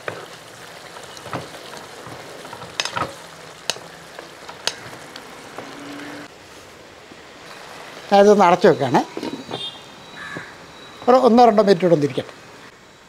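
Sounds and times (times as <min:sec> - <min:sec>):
food sizzling in a wok: 0:00.0 - 0:06.6, 0:07.4 - 0:08.6.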